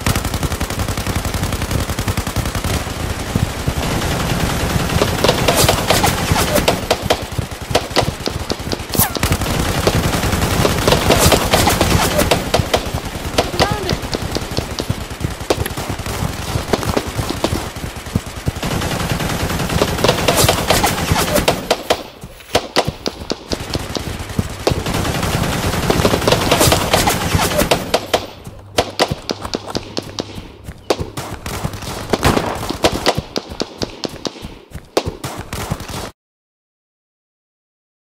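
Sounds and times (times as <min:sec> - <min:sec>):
machine-gun bursts: 0:00.0 - 0:22.0, 0:22.6 - 0:30.3
rifle shots: 0:00.0 - 0:36.1.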